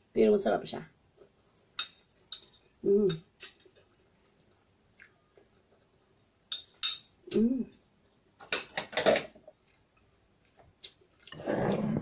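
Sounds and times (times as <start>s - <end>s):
person humming: 2.8s - 3.2s, 7.3s - 7.8s
cutlery clinking against dish: 8.5s - 9.4s
cutlery scraping dish: 8.6s - 9.4s.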